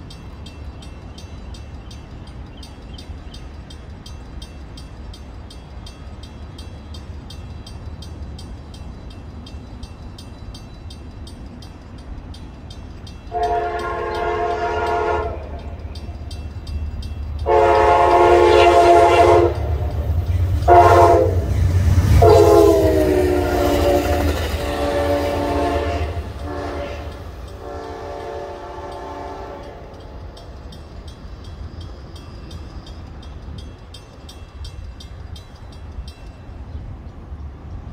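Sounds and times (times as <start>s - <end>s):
passing train rumble: 0.0s - 37.9s
train horn blasts: 13.3s - 15.8s, 17.4s - 30.0s.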